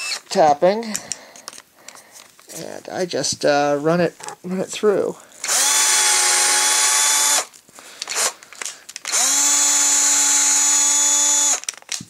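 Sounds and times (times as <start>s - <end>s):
cordless drill motor whine: 0.0s - 0.3s, 5.4s - 8.4s, 9.1s - 11.6s.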